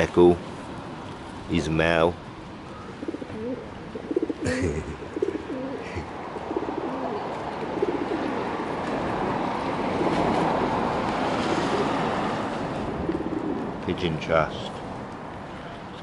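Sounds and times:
pigeons cooing: 2.8s - 8.8s, 11.6s - 12.2s, 12.8s - 13.8s.

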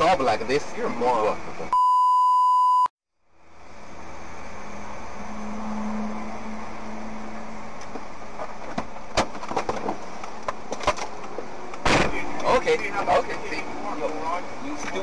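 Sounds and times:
cars idling: 3.3s - 15.0s.

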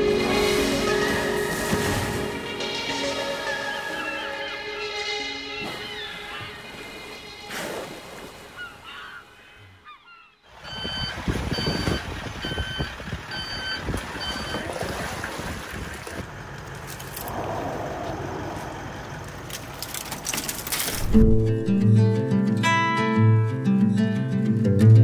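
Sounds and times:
short electronic beeps: 10.6s - 14.6s.

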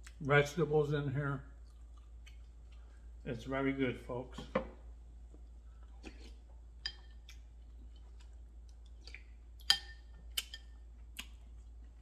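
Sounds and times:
spoon clinking against ceramic bowl: 9.6s - 10.7s.

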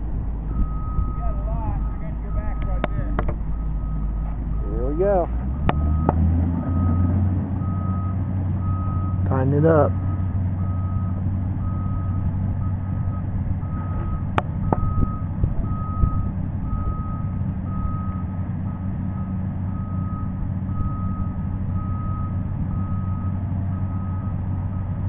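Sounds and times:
heavy machine engine: 0.0s - 25.0s
backup alarm beeping: 0.5s - 9.2s, 9.9s - 18.2s.

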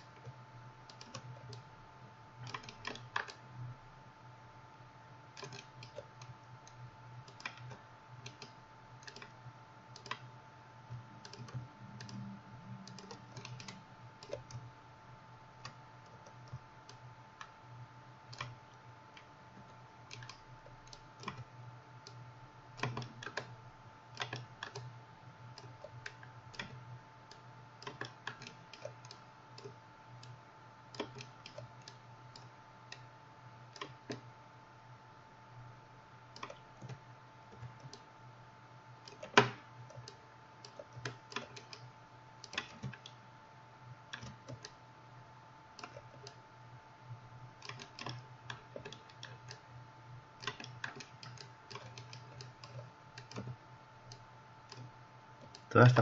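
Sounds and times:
faint steady hum: 0.0s - 56.0s
keyboard and mouse clicking: 0.1s - 1.6s, 2.4s - 3.4s, 5.4s - 10.3s, 11.2s - 14.7s, 18.3s - 19.3s, 20.1s - 21.5s, 22.8s - 23.6s, 24.2s - 24.9s, 25.6s - 33.0s, 33.7s - 34.3s, 36.3s - 38.1s, 39.0s - 43.2s, 44.1s - 44.8s, 45.8s - 46.4s, 47.6s - 49.6s, 50.4s - 56.0s.

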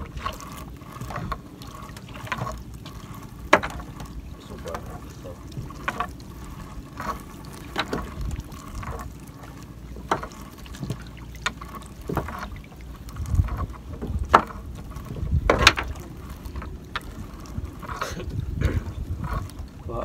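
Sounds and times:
wind on microphone: 3.8s - 9.1s, 12.1s - 20.0s.

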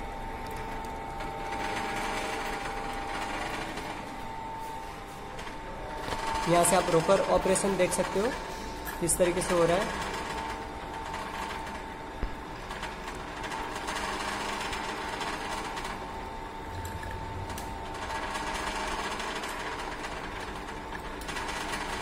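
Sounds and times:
engine running with whine: 16.5s - 18.2s.

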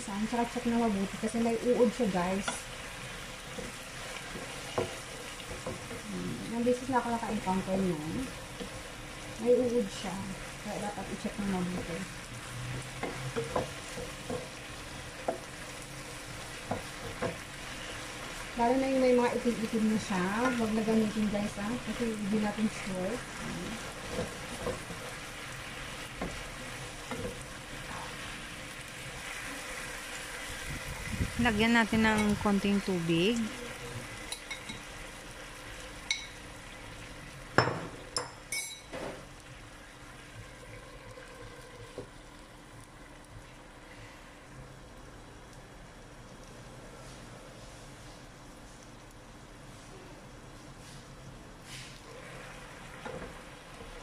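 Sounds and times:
food sizzling in a frying pan: 0.0s - 54.0s
spoon clinking on ceramic: 37.6s - 38.9s.

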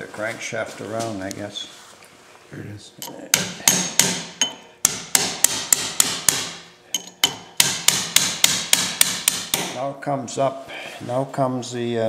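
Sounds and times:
hammer striking metal punch: 3.0s - 9.8s.

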